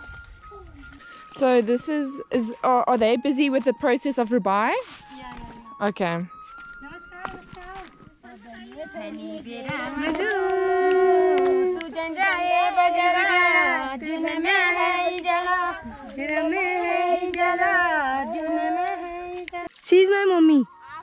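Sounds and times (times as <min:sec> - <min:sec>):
woman singing unaccompanied: 0:07.3 - 0:19.8.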